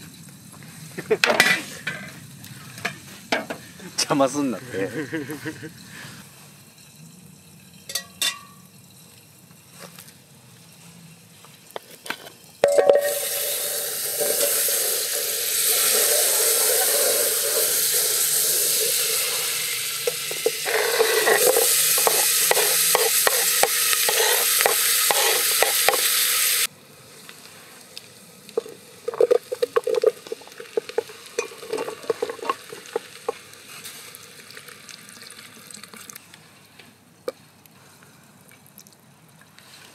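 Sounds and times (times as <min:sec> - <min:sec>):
food sizzling in a pot: 0:00.0 - 0:35.6
cookware clinking: 0:07.8 - 0:08.7, 0:12.6 - 0:17.7, 0:20.0 - 0:26.1, 0:29.1 - 0:33.4
utensil scraping a pot: 0:12.6 - 0:26.5, 0:29.1 - 0:33.9.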